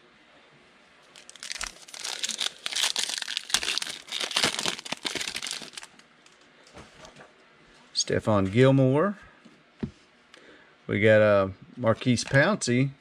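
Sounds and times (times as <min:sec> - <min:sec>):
foil wrapper tearing and crinkling: 0:01.1 - 0:06.0.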